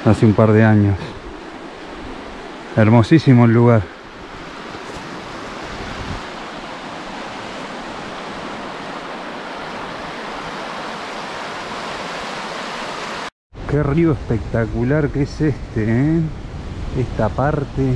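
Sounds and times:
river rushing over rocks: 0.0 - 13.3.

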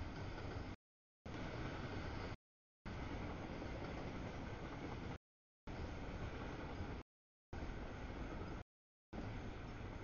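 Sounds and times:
freight train rumbling past: 0.0 - 7.0.

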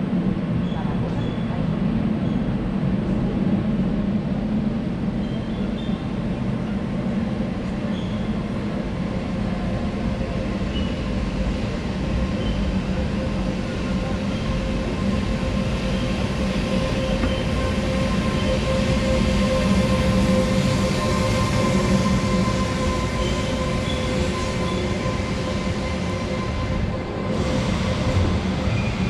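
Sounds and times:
train hum: 0.0 - 29.0
train wheels rumbling: 0.1 - 29.0
faint high squeaks: 7.9 - 8.3.

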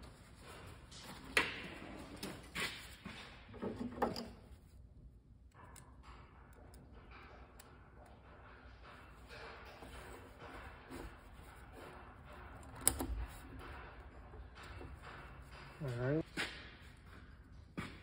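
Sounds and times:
metal clinks and knocks: 5.5 - 17.7.

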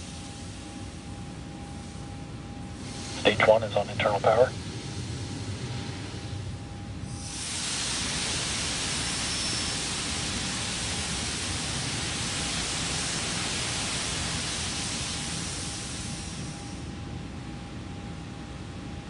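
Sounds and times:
gas venting hiss: 2.8 - 4.3, 7.1 - 16.8.

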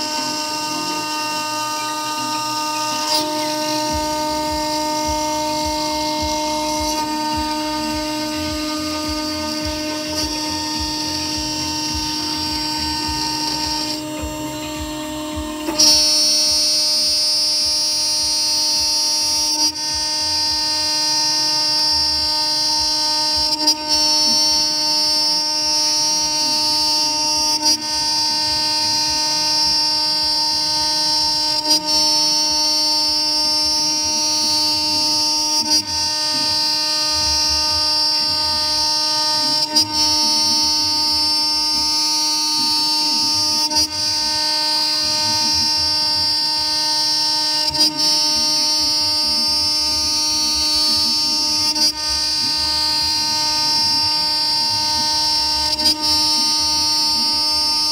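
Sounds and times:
end mill cutting aluminium: 0.0 - 57.9
router spindle high whine: 0.0 - 57.9.

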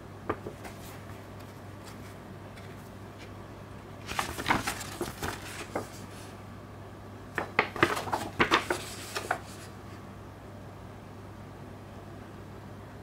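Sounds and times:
steady low hum: 0.0 - 13.0
paper rustling and crackling: 0.3 - 3.4, 4.0 - 6.4, 7.4 - 9.8.

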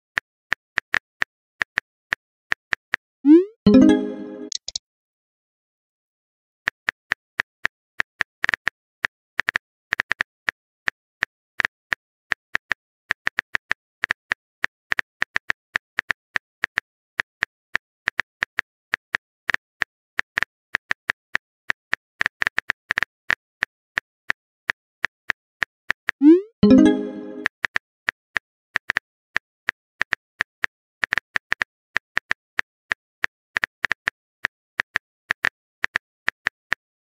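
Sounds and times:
phone keyboard typing clicks: 3.7 - 4.8.

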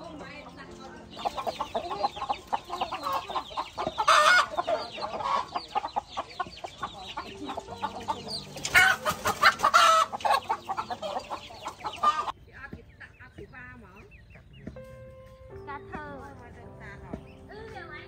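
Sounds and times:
chicks peeping: 0.0 - 18.0
adult chicken calling: 1.3 - 12.4.

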